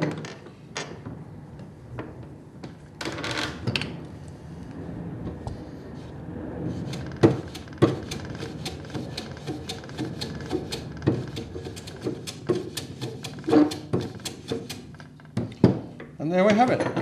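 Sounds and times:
hand plane scraping wood: 0:06.8 - 0:14.9
plane knocking on wood: 0:06.9 - 0:15.8.

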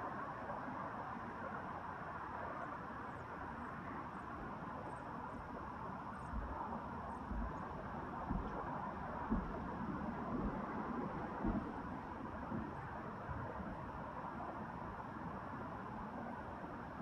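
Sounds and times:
faint low thumps: 0:08.2 - 0:12.7.

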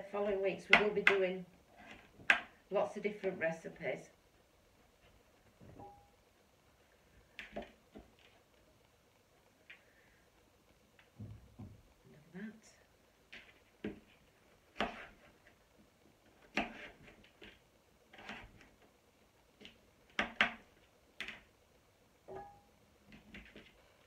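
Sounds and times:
knife chopping on plastic board: 0:00.7 - 0:01.2, 0:14.7 - 0:15.2, 0:16.4 - 0:17.1, 0:19.6 - 0:20.6.

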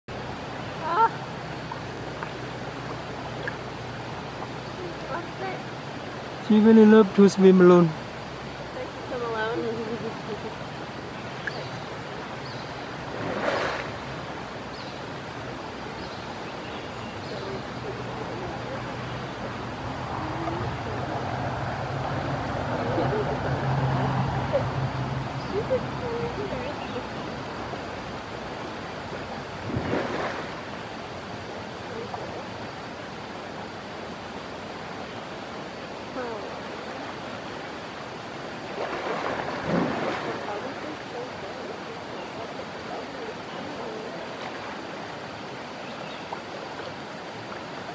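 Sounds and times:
river flowing: 0:00.1 - 0:47.9
steady outdoor hiss: 0:00.1 - 0:47.9
water splash: 0:10.8 - 0:14.5, 0:27.0 - 0:32.3, 0:36.7 - 0:41.0.

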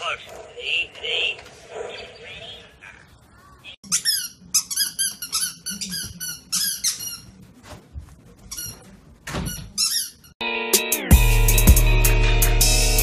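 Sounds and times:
squeaky toy squeaking: 0:03.9 - 0:07.4, 0:09.5 - 0:10.4.

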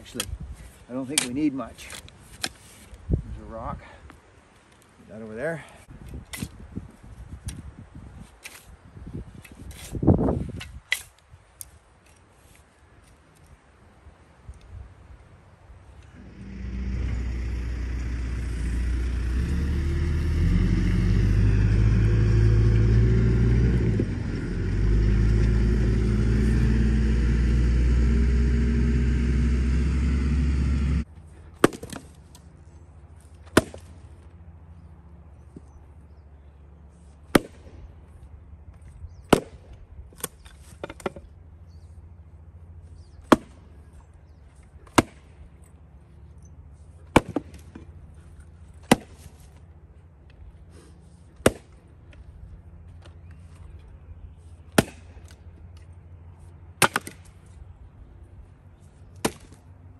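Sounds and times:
loud low rumble: 0:16.1 - 0:31.1
axe splitting firewood: 0:16.3 - 0:32.3, 0:33.4 - 0:33.9, 0:44.8 - 0:45.3, 0:47.0 - 0:47.9, 0:48.8 - 0:49.5, 0:51.4 - 0:51.8, 0:54.7 - 0:55.4, 0:56.8 - 0:57.3, 0:59.2 - 0:59.6.

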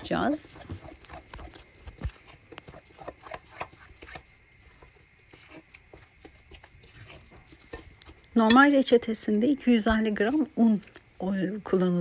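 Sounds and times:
dough squishing: 0:00.0 - 0:12.0
fork scraping glass bowl: 0:02.2 - 0:08.7.

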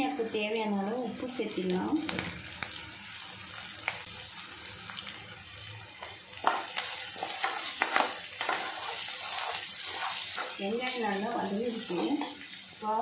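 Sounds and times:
vegetables sizzling in hot oil: 0:00.0 - 0:13.0
ladle scraping and clicking on pan: 0:06.4 - 0:10.6.

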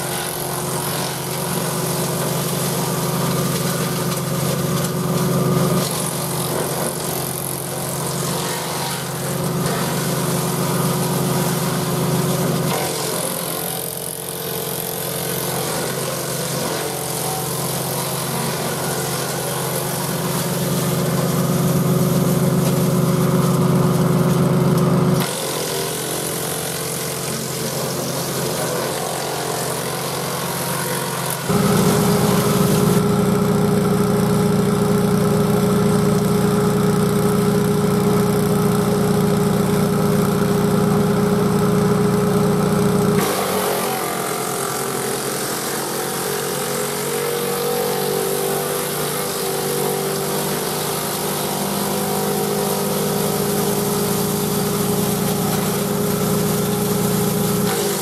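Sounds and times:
chipper shredder: 0:00.0 - 0:58.0
tractor engine running: 0:14.2 - 0:45.6, 0:52.0 - 0:58.0.

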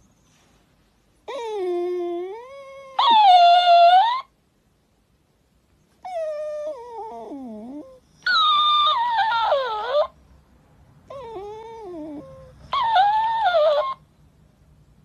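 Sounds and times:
puppy whining: 0:01.2 - 0:04.4, 0:06.0 - 0:10.2, 0:11.0 - 0:14.1.

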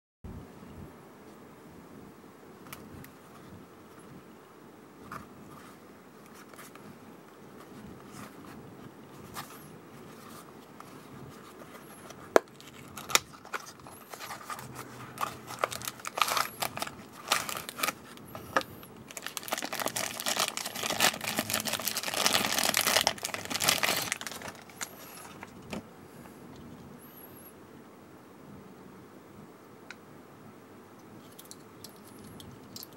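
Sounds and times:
packaging crinkling and rustling: 0:07.6 - 0:25.8.

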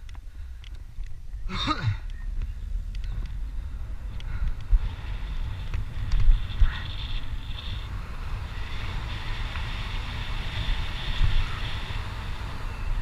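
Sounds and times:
wind buffeting microphone: 0:00.0 - 0:13.0
tyres rolling on asphalt: 0:03.2 - 0:13.0.

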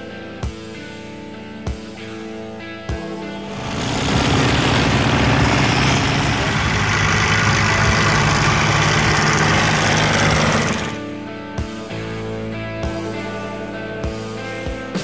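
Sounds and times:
tractor engines running hard: 0:03.4 - 0:11.0.

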